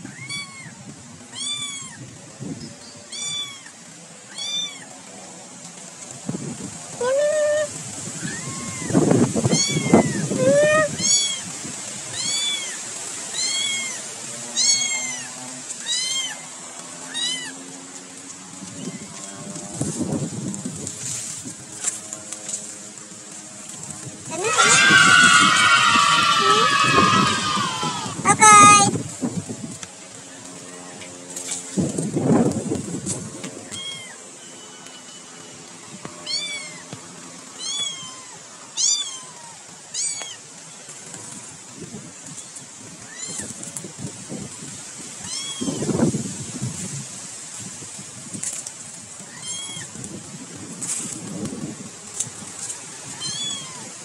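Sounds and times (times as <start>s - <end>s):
cat meowing: 0.1s - 2.0s, 3.1s - 3.7s, 9.5s - 11.4s, 24.3s - 28.9s, 53.2s - 53.9s.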